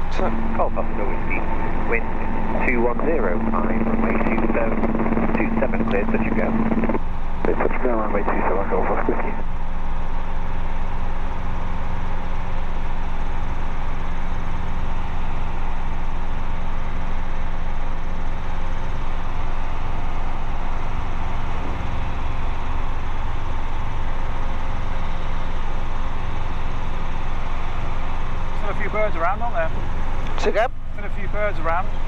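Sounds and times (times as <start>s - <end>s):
helicopter engine and rotors: 0.0s - 32.0s.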